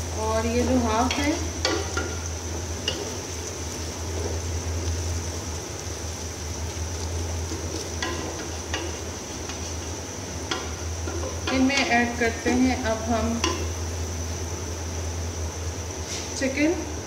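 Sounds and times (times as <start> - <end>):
onions sizzling in oil: 0.0 - 17.0
steady low hum: 0.0 - 17.0
spoon knocking against pot: 1.1 - 2.2, 8.0 - 9.0, 13.4 - 13.7.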